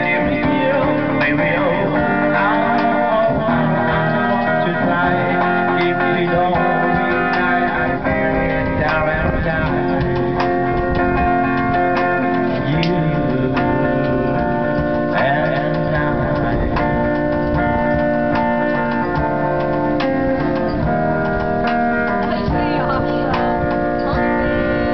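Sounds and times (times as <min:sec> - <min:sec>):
men singing: 0:00.0 - 0:19.2
strummed guitar: 0:00.0 - 0:24.9.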